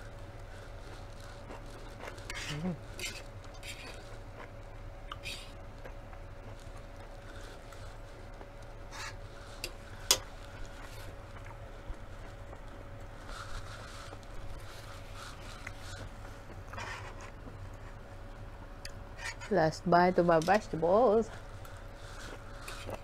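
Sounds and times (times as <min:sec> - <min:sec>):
soft chewing: 0:00.0 - 0:19.5, 0:21.3 - 0:23.0
fork scraping on metal pan: 0:08.9 - 0:09.7.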